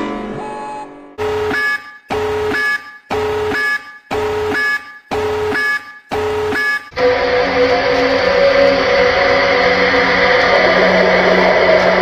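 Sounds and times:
electronic alarm beeps: 0.4 - 7.0.

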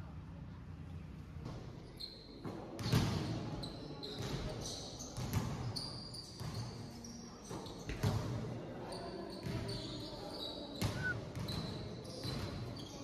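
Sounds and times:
sneakers squeaking: 1.8 - 8.2, 8.9 - 13.0
players' voices: 10.8 - 11.2.

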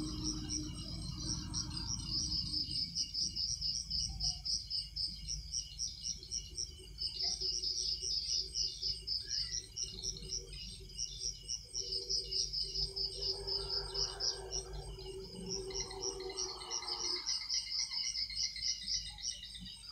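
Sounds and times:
low steady drone: 0.0 - 4.1, 11.9 - 18.0
crickets chirping: 0.0 - 19.9.

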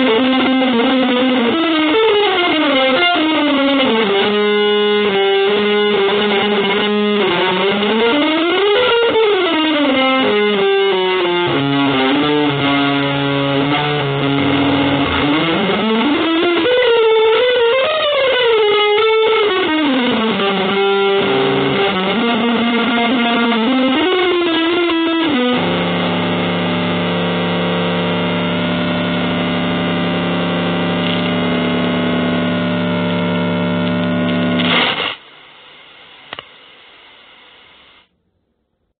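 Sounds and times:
distorted electric guitar: 0.0 - 38.1
faint hiss: 34.7 - 38.1.

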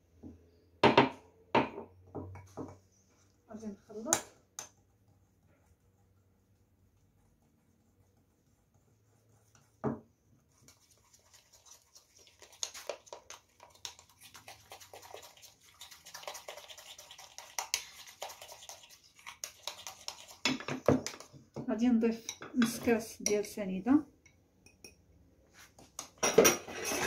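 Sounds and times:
utensil clicking and scraping bowl: 10.5 - 21.4, 22.2 - 23.5.

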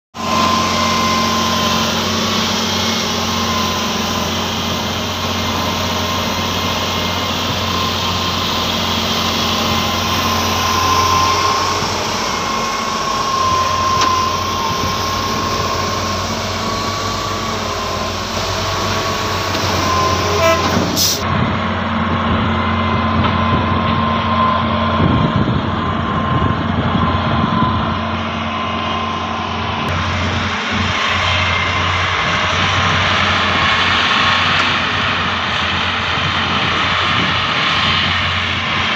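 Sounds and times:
excavator diesel engine hum: 0.1 - 38.9
steady high whine: 0.2 - 38.9.

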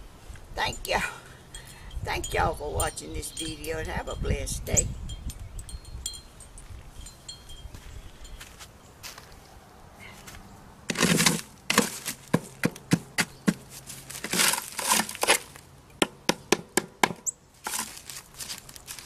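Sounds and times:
metal tool scraping and chipping: 10.9 - 12.1, 14.1 - 15.6.

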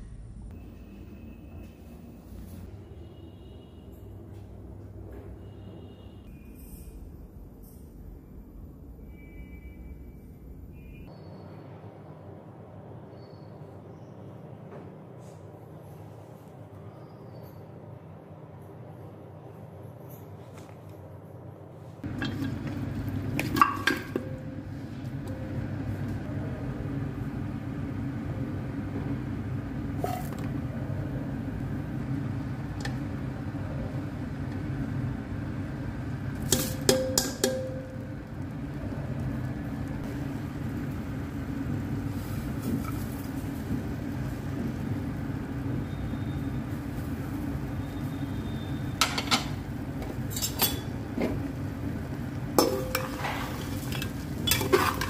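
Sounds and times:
steel strainer clinking on pot: 36.4 - 38.1, 52.6 - 55.0.

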